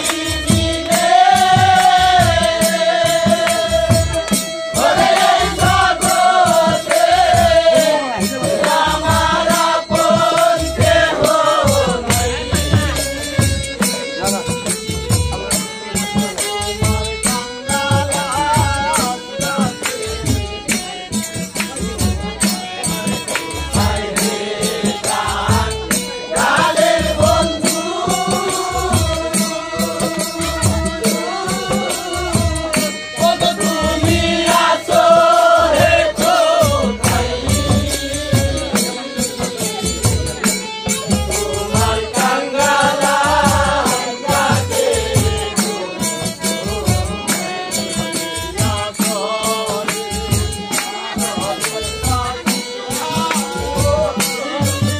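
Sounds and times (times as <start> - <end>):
jingling percussion: 0.0 - 54.9
person singing folk song: 0.0 - 54.9
steady drum beat: 0.0 - 54.9.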